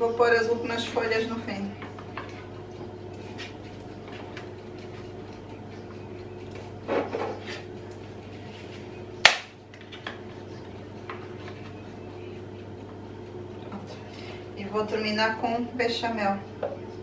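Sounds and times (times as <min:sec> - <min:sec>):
pasta snapping: 0:09.2 - 0:09.9.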